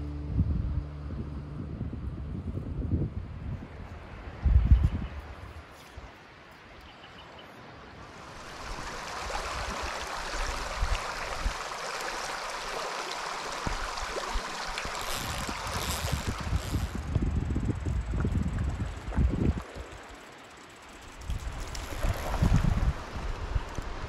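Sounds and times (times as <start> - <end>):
wind buffeting microphone: 0.2 - 5.7, 13.6 - 20.1, 21.1 - 24.0
creek running over stones: 8.0 - 24.0.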